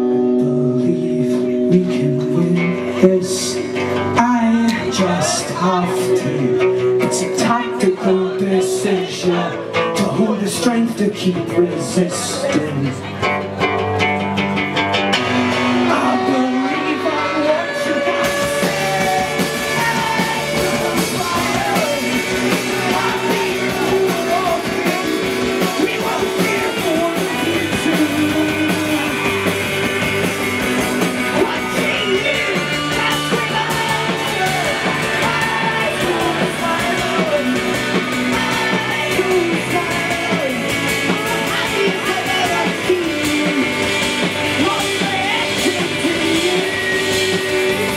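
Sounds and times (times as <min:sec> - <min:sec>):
man singing: 0:00.0 - 0:13.2, 0:15.6 - 0:47.9
live rock band playing: 0:00.0 - 0:47.9.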